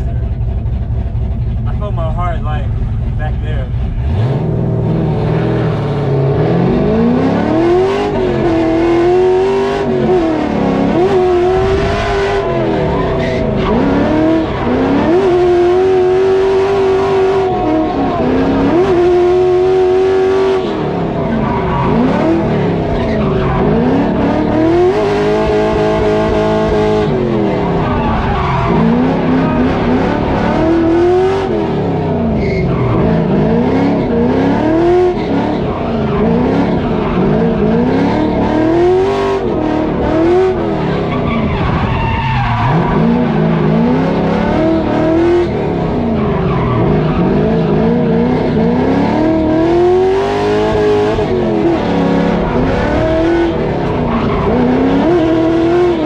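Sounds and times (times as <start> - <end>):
car engine revving hard: 3.2 - 56.0
tyre squeal: 40.9 - 43.4.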